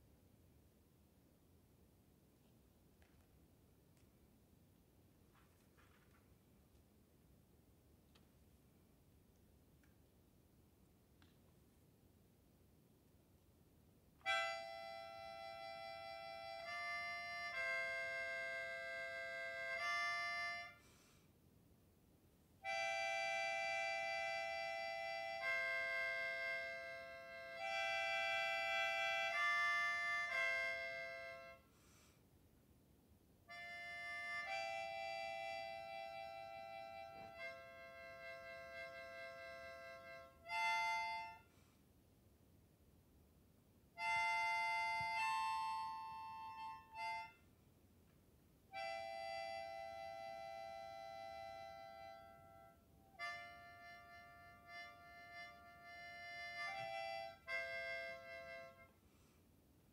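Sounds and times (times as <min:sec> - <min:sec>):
melodica playing held notes: 0:14.2 - 0:20.9, 0:22.6 - 0:31.7, 0:33.5 - 0:41.5, 0:43.9 - 0:47.5, 0:48.7 - 0:59.0.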